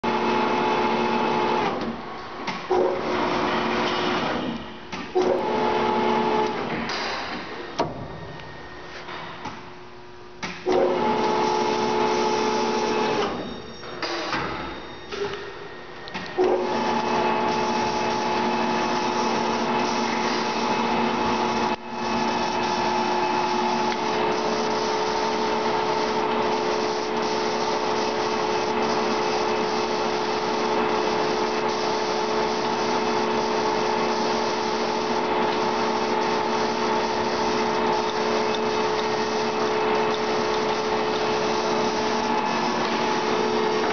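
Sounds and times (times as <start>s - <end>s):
lathe humming: 16.6s - 43.9s.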